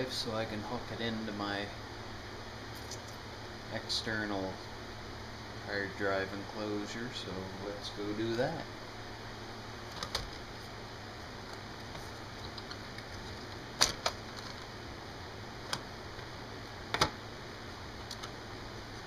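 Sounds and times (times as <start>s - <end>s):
laptop parts clicking and knocking: 12.4s - 14.7s.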